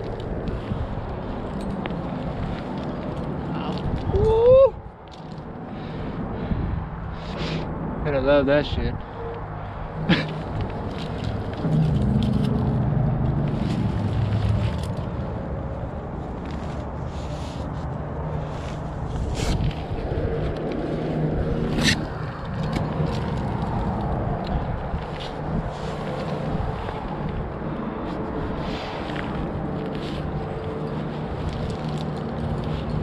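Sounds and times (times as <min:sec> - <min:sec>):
climbing gear clicks: 0:00.0 - 0:04.4, 0:09.3 - 0:15.4, 0:19.5 - 0:28.2, 0:29.0 - 0:33.0
low rumble: 0:09.0 - 0:17.0
hands and clothing scraping rock: 0:16.3 - 0:33.0.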